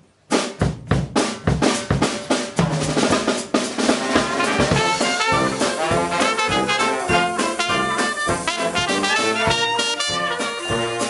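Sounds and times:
bass drum and snare strokes: 0.0s - 11.0s
jazz band playing: 0.7s - 11.0s.

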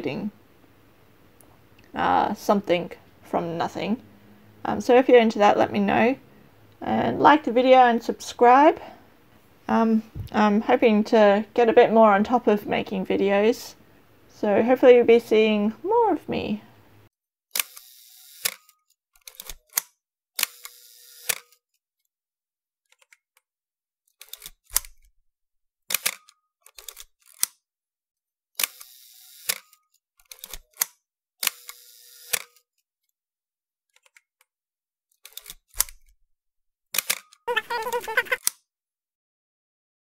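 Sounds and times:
camera shutter clicking: 17.6s - 18.7s, 20.4s - 21.6s, 28.6s - 29.7s, 30.6s - 32.6s.

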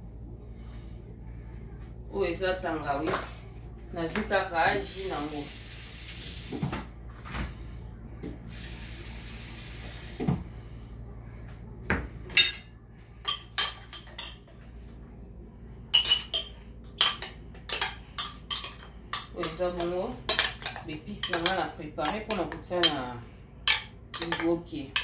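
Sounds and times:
kitchen tap running: 4.9s - 6.8s.

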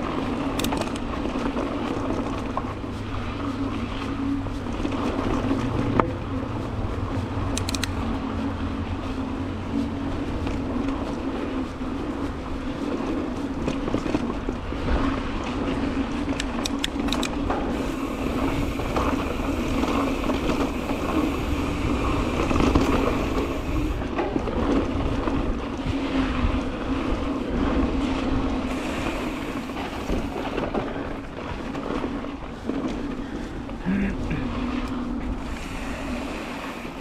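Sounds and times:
bike rolling on dirt trail: 0.0s - 37.0s
wind on microphone: 0.0s - 37.0s.

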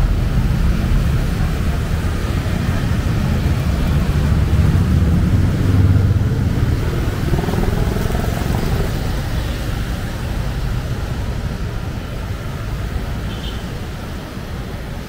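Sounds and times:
passing vehicle engines rumbling: 0.0s - 15.0s.

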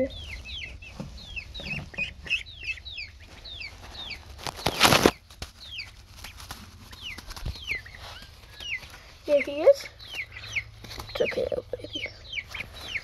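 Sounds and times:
chicks peeping: 0.0s - 13.0s
loud rustle: 3.3s - 9.2s.

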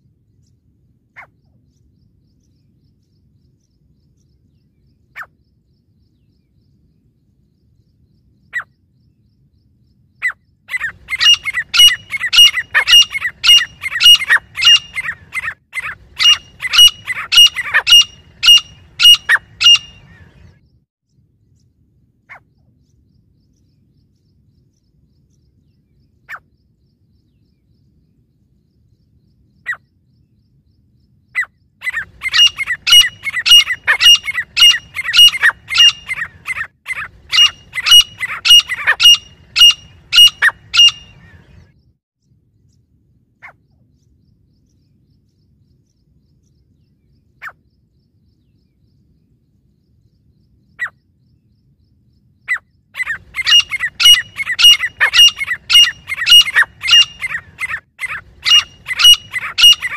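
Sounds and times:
francolins calling: 10.2s - 20.5s, 31.3s - 41.7s, 52.4s - 59.9s.

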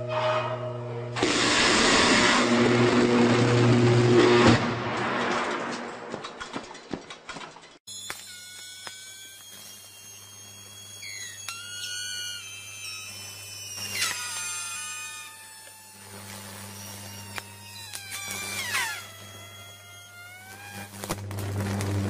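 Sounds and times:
high squealing whistling tones: 7.9s - 21.2s.

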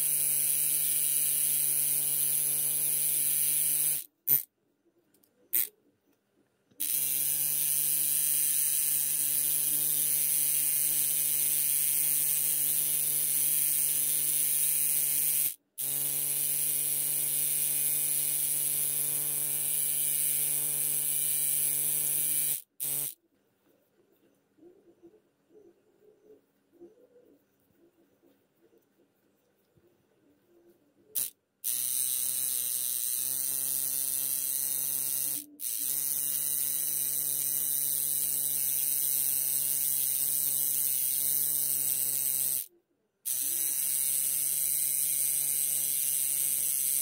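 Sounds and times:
small motor buzzing: 0.0s - 4.5s, 5.5s - 5.7s, 6.8s - 23.2s, 31.2s - 47.0s.

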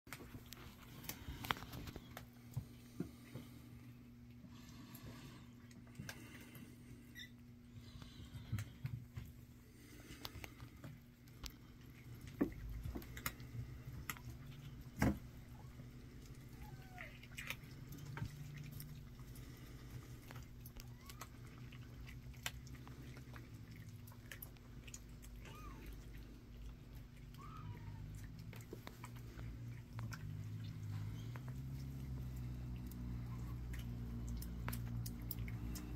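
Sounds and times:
cats eating dry food: 0.1s - 35.9s
kittens mewing: 12.4s - 35.9s
light clicks and taps: 28.2s - 35.9s.

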